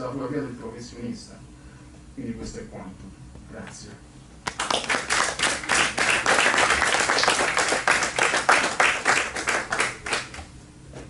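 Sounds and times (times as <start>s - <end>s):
audience applauding: 4.5s - 10.4s.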